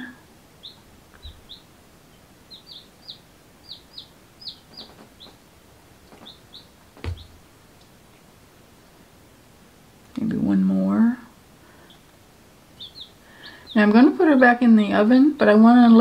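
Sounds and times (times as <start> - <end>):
baby chicks peeping: 0.0 - 8.0, 11.7 - 16.0
thump: 7.0 - 7.2.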